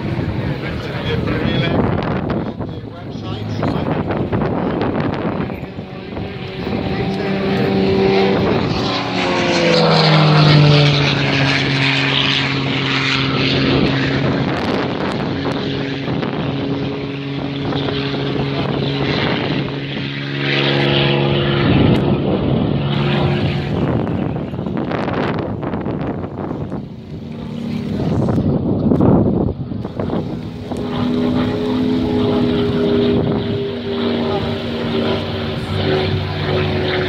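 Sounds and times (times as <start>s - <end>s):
propeller plane engine: 0.0s - 37.0s.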